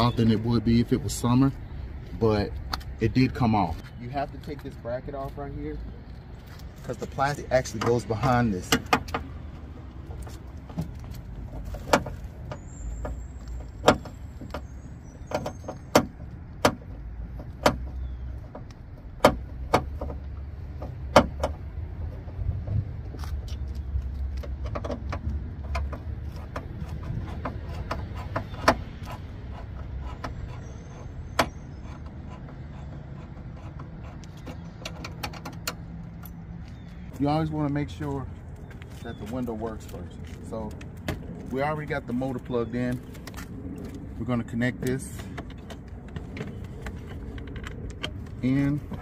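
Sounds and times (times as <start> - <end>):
steady low rumble: 0.0 - 15.3, 36.0 - 49.0.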